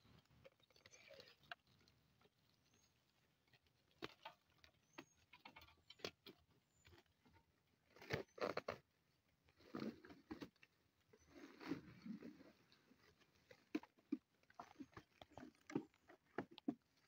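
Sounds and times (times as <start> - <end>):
faint clicks and knocks: 13.5 - 17.0.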